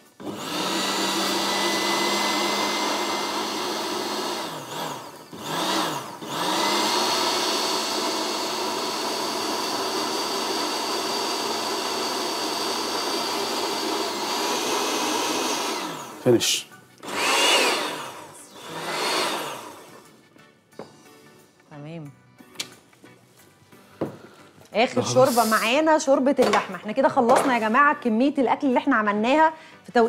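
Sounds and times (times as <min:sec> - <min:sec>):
electric blender running: 0:00.0 - 0:16.4, 0:17.0 - 0:20.2.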